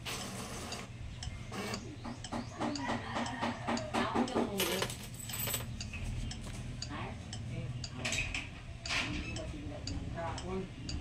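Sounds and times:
bill acceptor whirring and clicking: 0:00.0 - 0:00.9.

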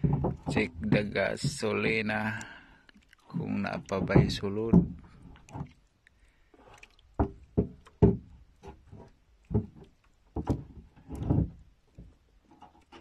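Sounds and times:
knocks against wooden boat: 0:00.0 - 0:02.0, 0:03.8 - 0:05.1, 0:07.2 - 0:12.1.

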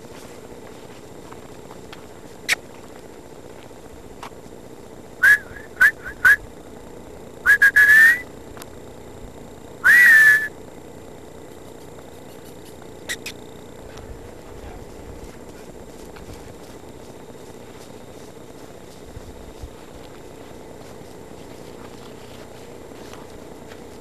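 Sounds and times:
high whistle-like squeaks: 0:09.9 - 0:10.5.

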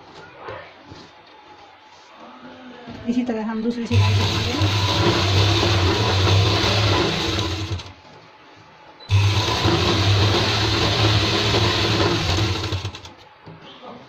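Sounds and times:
sewing machine stitching: 0:03.9 - 0:08.0, 0:09.1 - 0:13.2.

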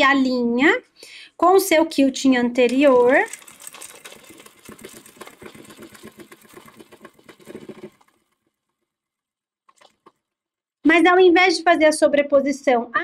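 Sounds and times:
sewing machine stitching: 0:02.7 - 0:08.9.

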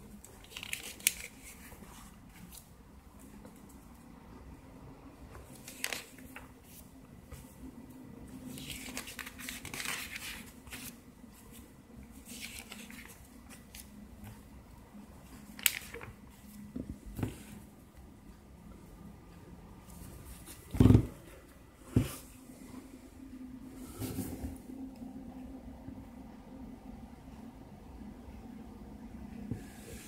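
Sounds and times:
paper pages rustling: 0:00.2 - 0:02.7, 0:05.4 - 0:07.5, 0:08.5 - 0:14.4, 0:15.3 - 0:17.6.

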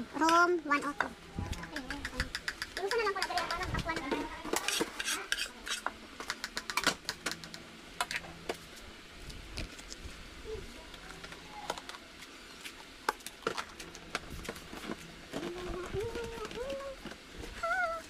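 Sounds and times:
faint steady hum: 0:00.0 - 0:18.0
spatula scraping in a wok: 0:04.4 - 0:05.9.

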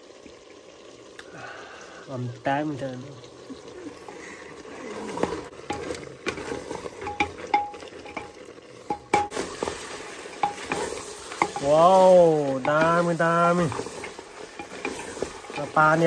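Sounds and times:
faint sizzle: 0:00.0 - 0:16.0
spoon clinking against pot: 0:07.0 - 0:09.4, 0:10.4 - 0:11.8.

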